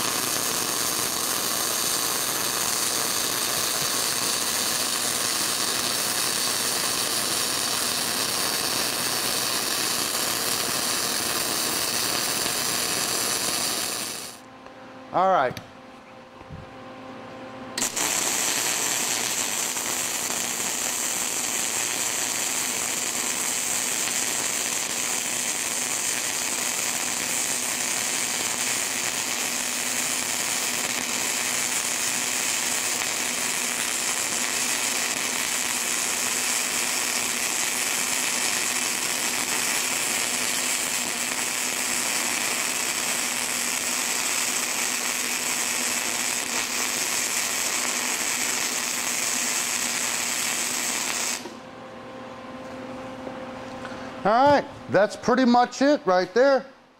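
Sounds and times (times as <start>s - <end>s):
welding arc crackling: 0.0s - 14.4s, 17.8s - 51.6s
faint steady hum: 0.0s - 37.4s.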